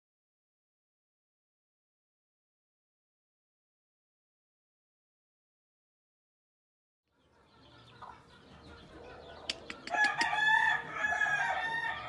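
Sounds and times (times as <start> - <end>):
rooster crowing: 9.8 - 12.0.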